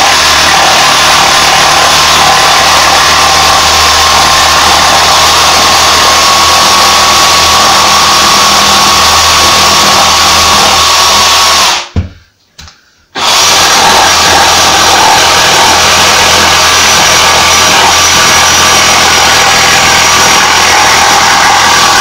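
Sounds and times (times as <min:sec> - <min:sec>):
jigsaw cutting wood: 0:00.0 - 0:12.0, 0:13.2 - 0:22.0
knock: 0:11.9 - 0:12.7.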